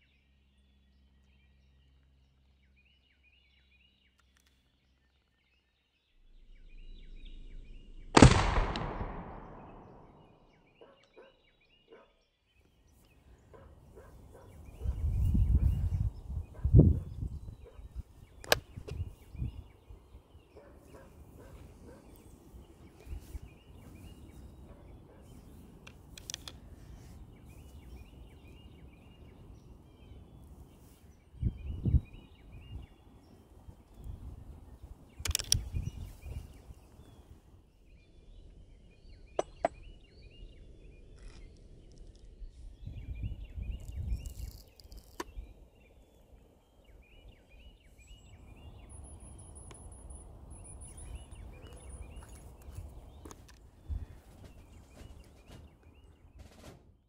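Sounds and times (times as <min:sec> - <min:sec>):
birdsong chirps: 0:00.0 - 0:57.0
rifle metallic clicks: 0:08.2 - 0:10.1, 0:25.8 - 0:26.6, 0:35.2 - 0:35.8.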